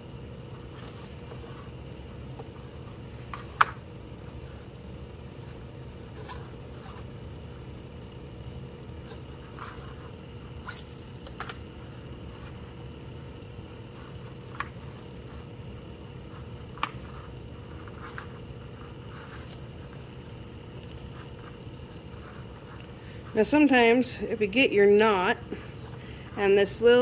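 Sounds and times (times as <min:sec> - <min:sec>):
steady low hum: 0:00.0 - 0:27.0
cord rustling and scraping: 0:16.2 - 0:23.5.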